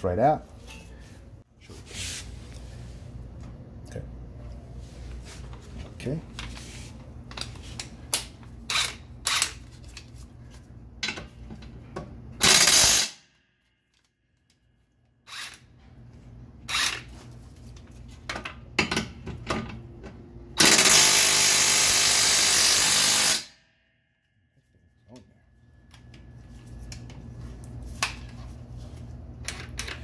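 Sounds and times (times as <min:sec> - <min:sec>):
impact wrench hammering: 0:12.4 - 0:13.2, 0:20.6 - 0:23.6.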